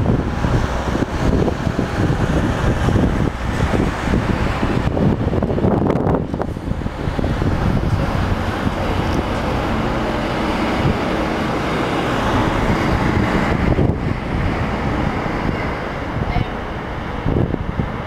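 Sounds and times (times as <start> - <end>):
road traffic: 0.0 - 18.0.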